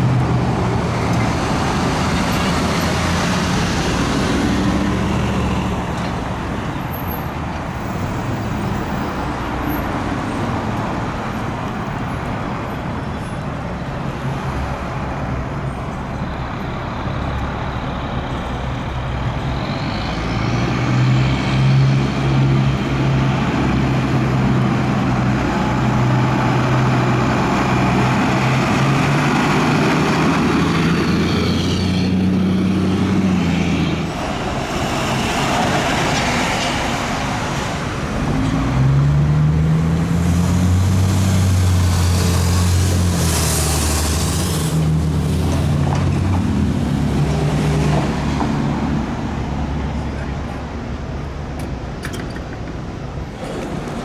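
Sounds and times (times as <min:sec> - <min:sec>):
street traffic: 0:00.0 - 0:54.0
fire engine diesel rumble: 0:10.8 - 0:20.4, 0:40.6 - 0:54.0.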